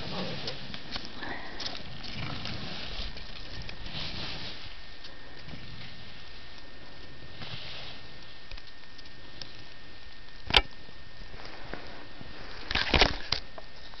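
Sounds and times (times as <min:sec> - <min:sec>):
microphone hiss: 0:00.0 - 0:14.0.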